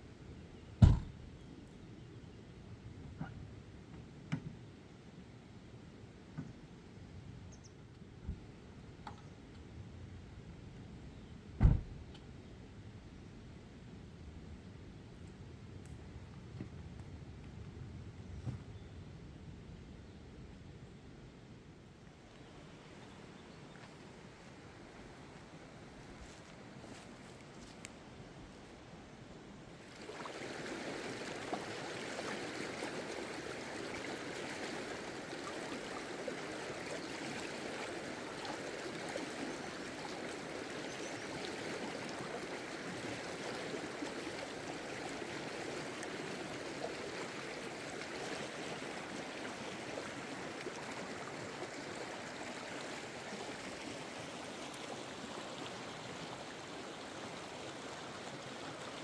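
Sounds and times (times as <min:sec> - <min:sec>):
stream flowing over stones: 0:29.7 - 0:59.0.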